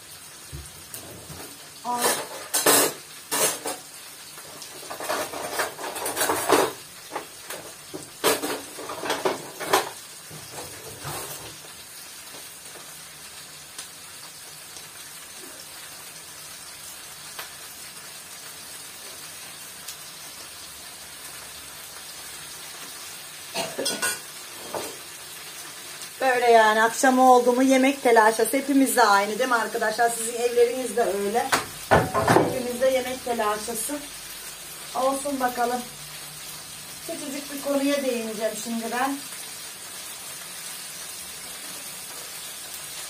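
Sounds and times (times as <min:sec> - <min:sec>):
vegetables sizzling in oil: 0:00.0 - 0:43.0
utensils and dishes clattering: 0:01.0 - 0:03.9, 0:04.6 - 0:11.6, 0:23.6 - 0:25.0, 0:31.5 - 0:32.8.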